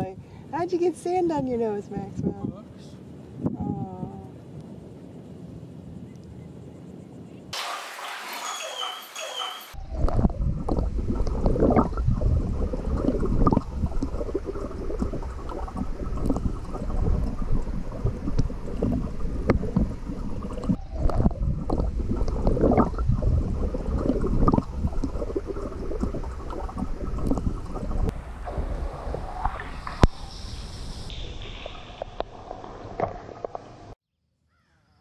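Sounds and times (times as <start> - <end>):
muffled water sloshing underwater: 7.6 - 34.0.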